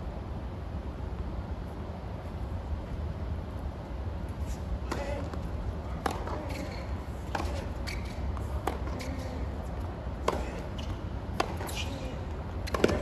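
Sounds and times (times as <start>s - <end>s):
low background hum: 0.0s - 13.0s
tennis rackets hitting ball: 4.8s - 13.0s.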